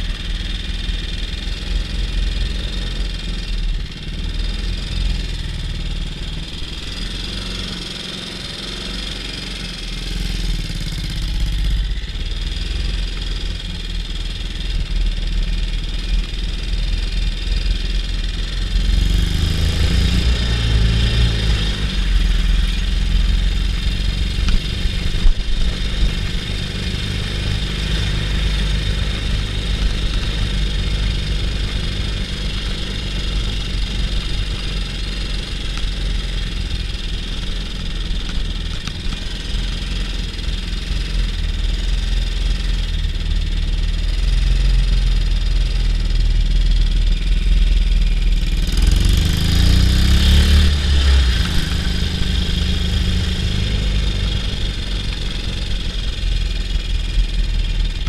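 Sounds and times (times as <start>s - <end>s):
motorcycle engine running: 0.0s - 58.0s
tractor diesel engine: 0.0s - 58.0s.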